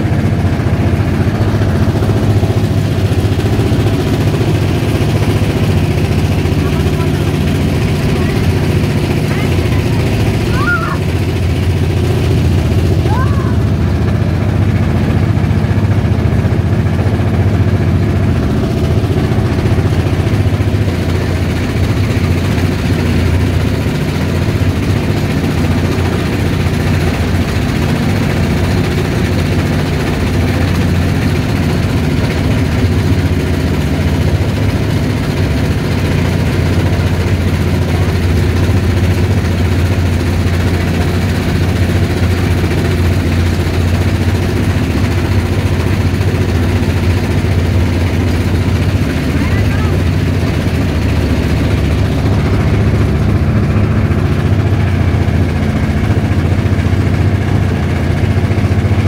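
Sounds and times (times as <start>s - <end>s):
motorboat engine droning: 0.0s - 59.0s.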